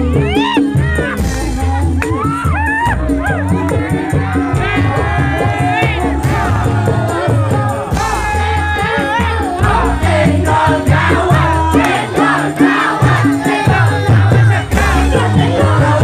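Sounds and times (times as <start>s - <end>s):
crowd voices: 0.0s - 16.0s
live band music: 0.0s - 16.0s
woman singing: 3.5s - 16.0s.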